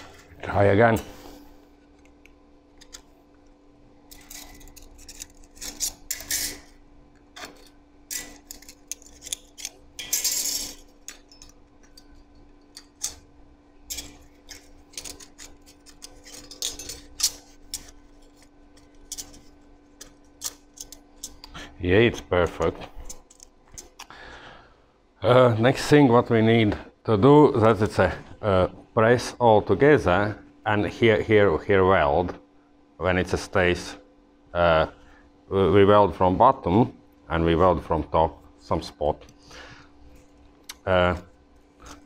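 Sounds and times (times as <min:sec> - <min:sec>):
faint steady hum: 0:00.0 - 0:42.0
metal parts clinking: 0:04.1 - 0:06.7, 0:07.4 - 0:21.5, 0:22.6 - 0:24.0
metal rasping scrape: 0:04.1 - 0:06.8, 0:13.9 - 0:21.5.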